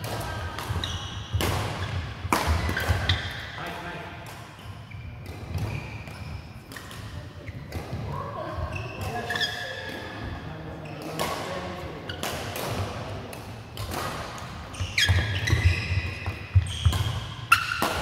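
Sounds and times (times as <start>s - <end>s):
shoes squeaking on court floor: 0.7s - 3.6s, 4.4s - 11.4s, 13.8s - 18.0s
sharp racket hits: 1.4s - 3.5s, 12.1s - 18.0s.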